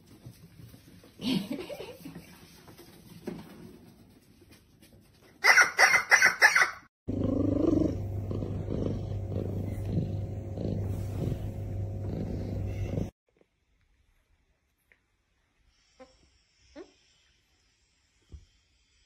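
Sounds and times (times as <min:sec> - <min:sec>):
sharp animal calls: 0:05.4 - 0:06.9
cat purring loudly: 0:07.1 - 0:13.1.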